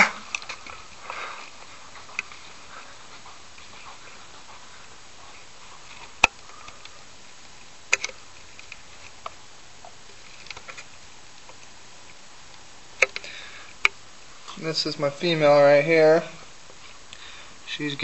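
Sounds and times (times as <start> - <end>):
steady hiss: 0.0 - 18.0
sharp clicks and knocks: 7.9 - 10.9, 13.0 - 14.0.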